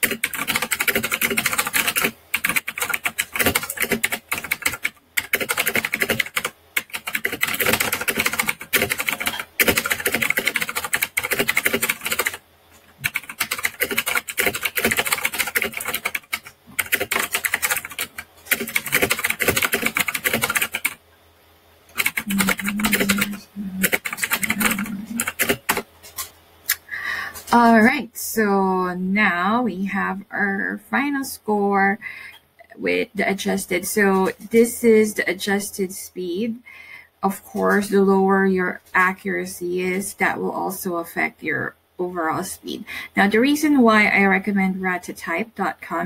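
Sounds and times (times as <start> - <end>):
fast typing on keyboard: 0.0 - 12.4, 13.0 - 21.0, 21.9 - 25.9.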